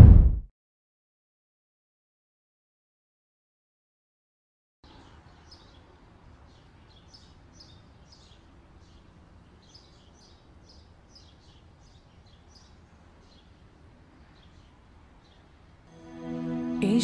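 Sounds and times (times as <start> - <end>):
small birds chirping: 4.8 - 15.7.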